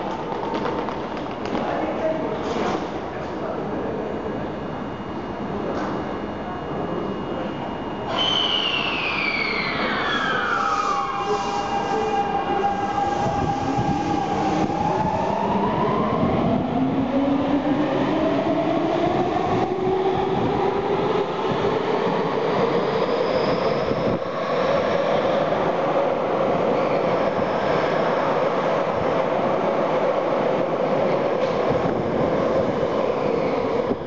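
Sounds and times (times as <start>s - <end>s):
train wheel and running noise: 5.2s - 7.5s, 31.1s - 32.8s.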